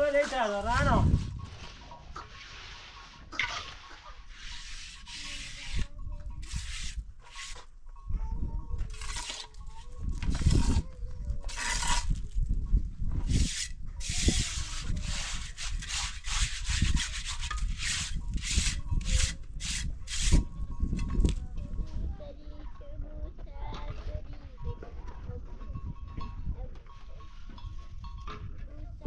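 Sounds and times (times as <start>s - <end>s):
trowel scraping mortar: 0.0s - 7.7s, 8.9s - 10.8s, 11.5s - 12.4s, 13.2s - 20.4s.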